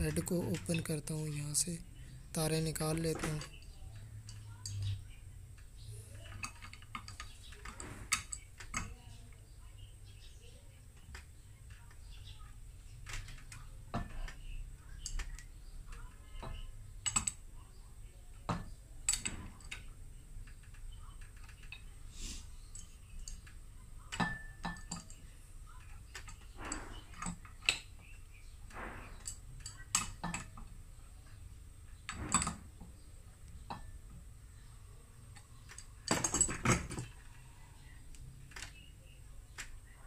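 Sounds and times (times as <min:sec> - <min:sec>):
wrench clinking on metal: 0:22.7 - 0:25.2, 0:35.7 - 0:37.1.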